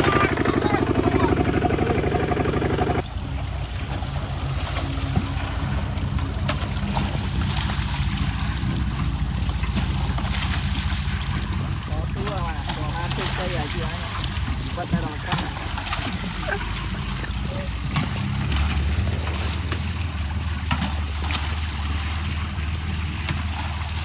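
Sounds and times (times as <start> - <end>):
single-cylinder diesel engine chugging: 0.0 - 3.1.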